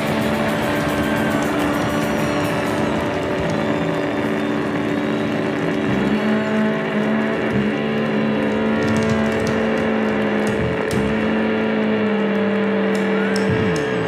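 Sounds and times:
live rock band playing: 0.0 - 6.2
distorted electric bass: 0.0 - 14.0.

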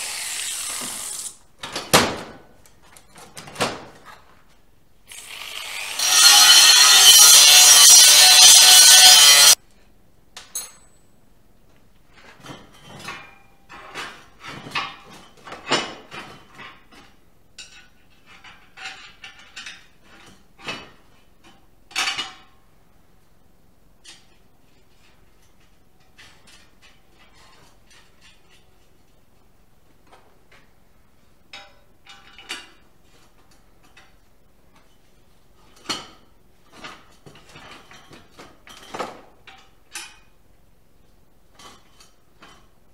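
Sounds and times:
power tool cutting steel pipe: 0.0 - 1.3, 5.1 - 9.6
metal clinks and knocks: 10.4 - 11.2.

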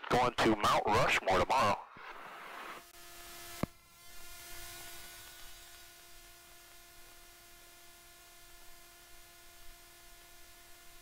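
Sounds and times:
light hiss: 2.1 - 10.9.

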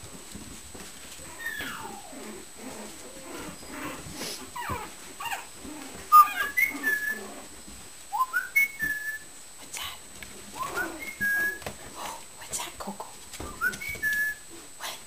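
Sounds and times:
puppies whining and yipping: 1.2 - 7.5, 10.5 - 11.7, 13.4 - 14.4.

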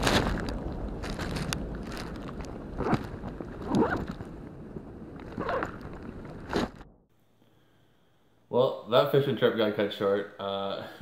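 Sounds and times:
rustles and bumps: 0.0 - 7.1.

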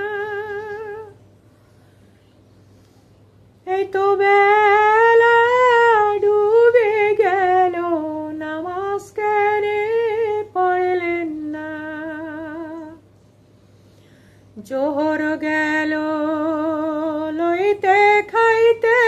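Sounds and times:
woman singing unaccompanied: 0.0 - 1.2, 3.6 - 13.1, 14.6 - 19.0
woman breathing: 1.4 - 3.5, 13.4 - 14.6.

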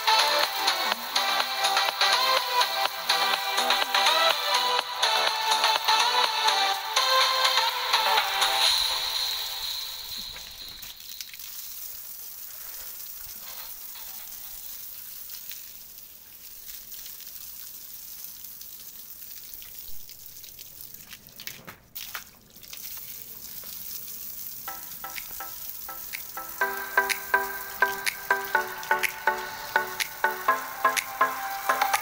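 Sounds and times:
music: 0.0 - 10.9, 24.7 - 32.0
water jet spraying on tiles: 7.6 - 20.0, 22.0 - 32.0.

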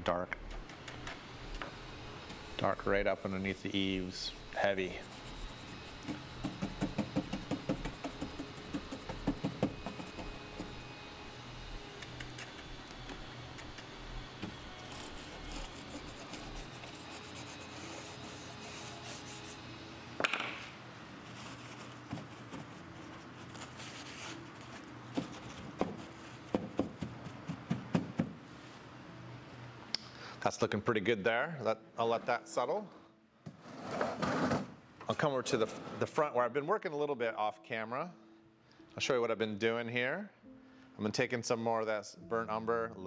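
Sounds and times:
paintbrush scrubbing: 3.7 - 10.7, 14.8 - 19.6.

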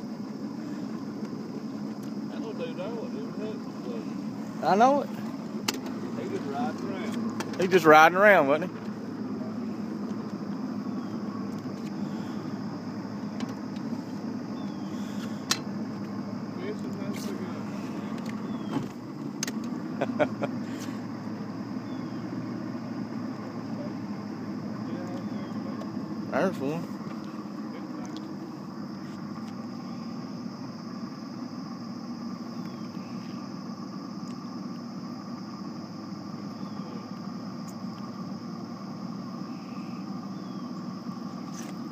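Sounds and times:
boat motor humming: 0.0 - 41.9.

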